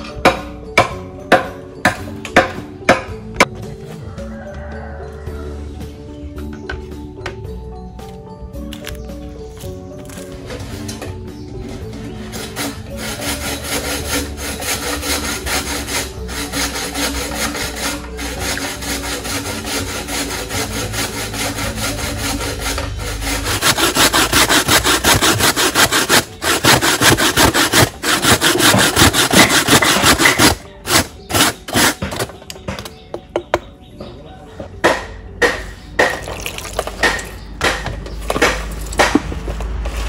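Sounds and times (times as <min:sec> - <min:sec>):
coconut grated on metal grater: 0:12.1 - 0:32.3.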